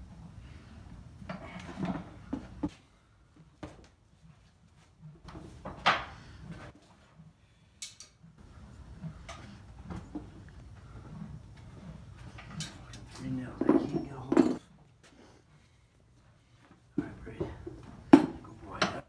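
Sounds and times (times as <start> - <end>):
metal tools on wooden workbench: 7.7 - 8.2, 12.2 - 14.8, 17.0 - 19.0.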